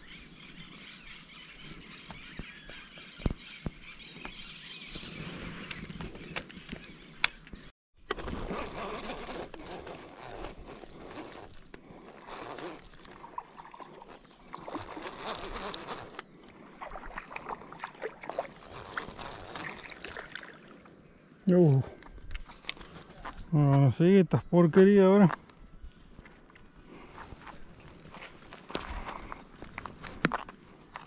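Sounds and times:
handling noise and clicks: 5.7 - 16.3
fishing reel cranking: 8.2 - 16.2
bird chirps: 19.6 - 24.5.

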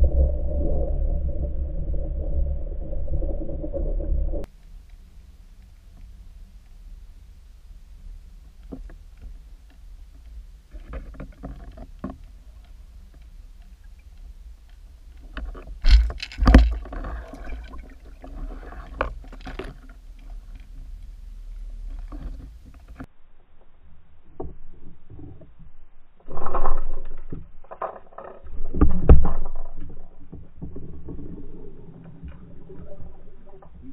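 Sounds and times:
water rumbling over camera housing: 0.0 - 23.1
clicks and rattles: 15.2 - 20.0.

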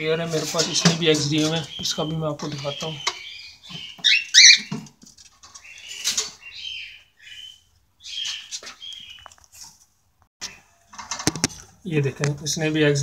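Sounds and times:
cockatiels calling: 0.6 - 4.8, 5.6 - 9.4.

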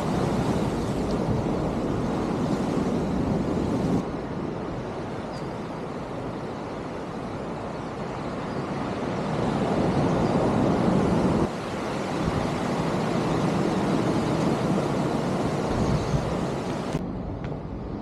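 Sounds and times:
sea surf: 0.0 - 17.0
wind on microphone: 9.4 - 18.0.

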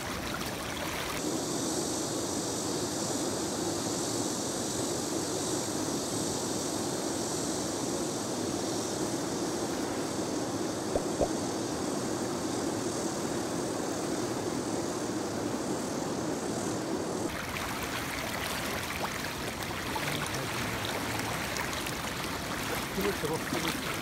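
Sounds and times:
river flowing over stones: 0.0 - 1.2, 17.3 - 24.0.

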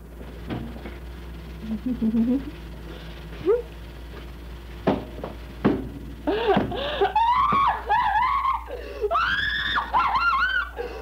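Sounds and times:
sharp knocks: 4.8 - 6.8
woman laughing shrilly: 6.3 - 11.0.

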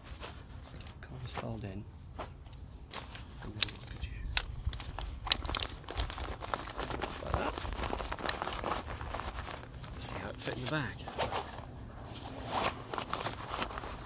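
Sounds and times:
sharp crackles: 3.5 - 10.6
nylon fabric rustling: 5.2 - 14.0.

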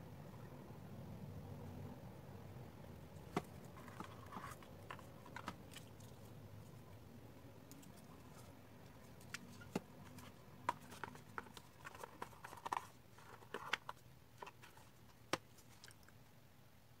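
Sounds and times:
soft rustling: 7.6 - 16.1.

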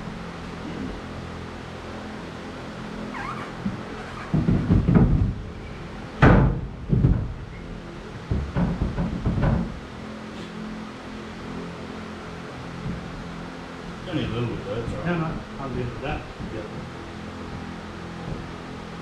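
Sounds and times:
floor panel thudding against hull: 3.6 - 5.5, 6.2 - 7.5, 8.2 - 9.8.

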